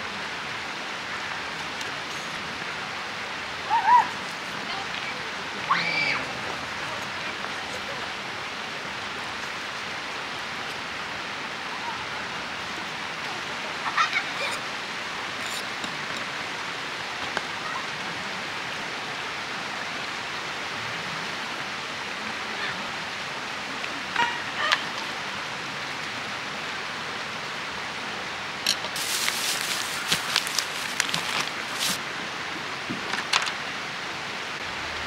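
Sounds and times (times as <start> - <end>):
rushing background noise: 22.9 - 35.0.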